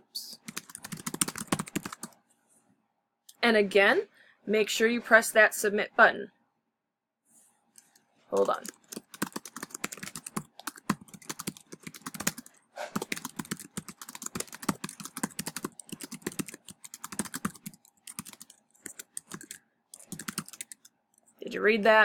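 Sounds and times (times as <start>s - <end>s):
typing on computer keyboard: 0.4s - 2.2s, 8.4s - 20.9s.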